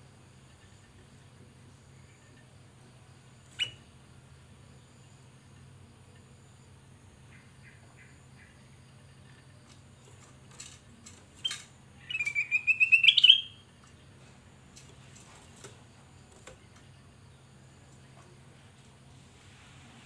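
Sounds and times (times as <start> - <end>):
faint bird chirps: 0.3 - 4.0, 4.8 - 10.3, 11.4 - 14.1.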